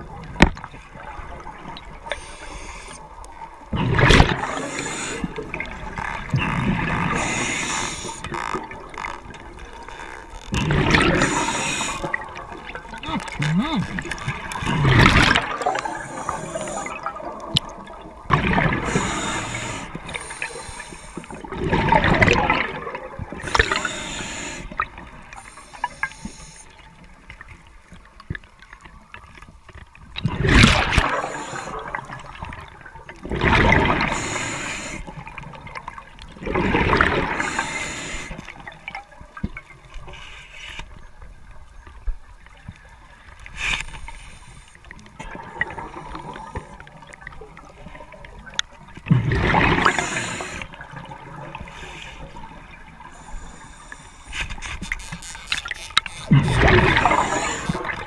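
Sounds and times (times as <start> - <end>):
underwater breath bubbling: 1.0 - 9.0, 10.6 - 26.9, 30.3 - 35.8, 36.4 - 38.9, 49.1 - 55.4, 56.2 - 58.0.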